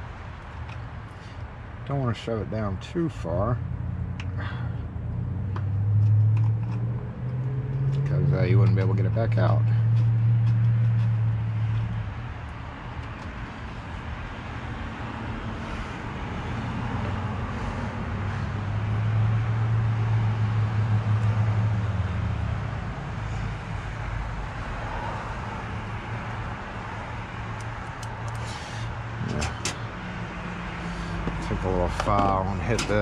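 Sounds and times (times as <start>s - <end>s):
rushing background noise: 9.6s - 33.0s.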